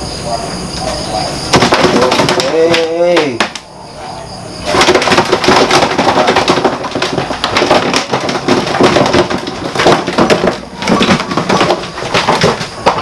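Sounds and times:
plastic bin clattering and scraping: 0.9 - 3.6, 4.6 - 13.0
plastic bin knocking on floor: 1.5 - 3.6, 4.7 - 13.0.

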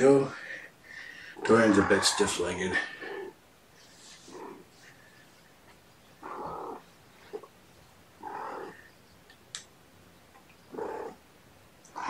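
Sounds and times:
cat meowing: 6.2 - 6.8, 8.2 - 8.8.

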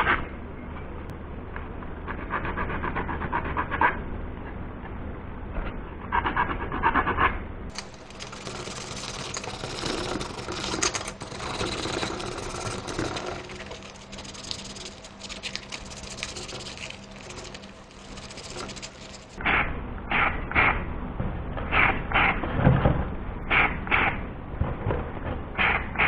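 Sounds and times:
metal tool scraping plastic: 7.7 - 19.4
sandpaper rubbing on plastic: 7.7 - 19.4.

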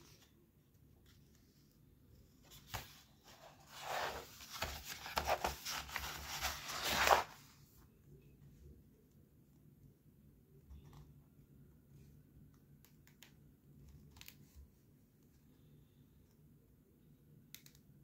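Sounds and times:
paper pages rustling: 2.4 - 7.5.

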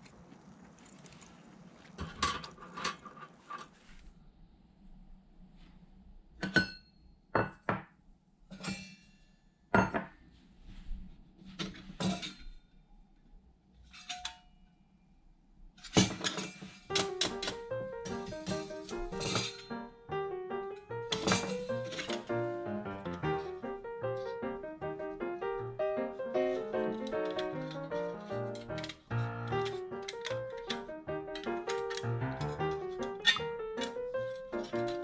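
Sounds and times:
light piano music: 16.3 - 35.0
metallic clinks and knocks: 28.6 - 35.0.

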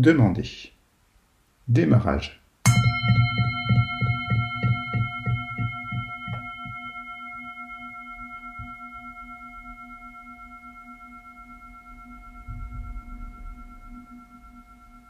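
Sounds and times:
rhythmic musical beat: 2.7 - 7.0
singing bowl ringing: 2.7 - 15.0.

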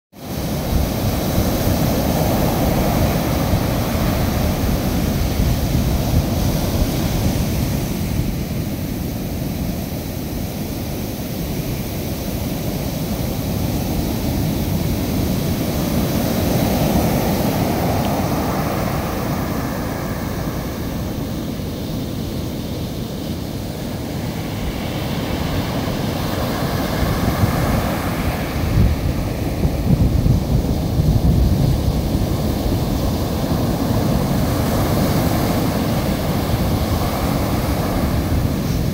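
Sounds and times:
ocean surf breaking on beach: 0.2 - 38.9.

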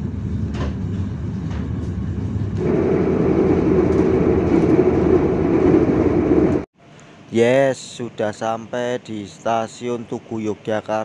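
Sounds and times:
train carriage rumbling: 0.0 - 6.7.

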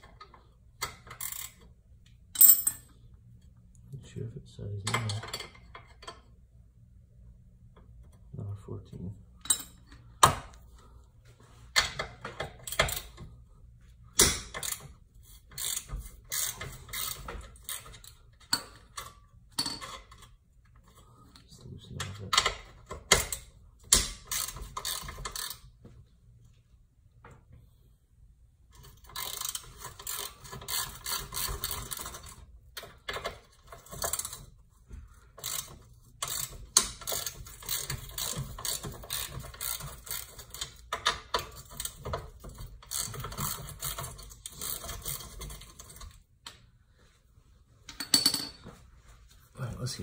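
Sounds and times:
ratchet wrench clicking: 0.9 - 1.6, 15.5 - 18.1, 24.0 - 25.6, 28.8 - 32.3, 35.4 - 42.1, 42.7 - 46.1.

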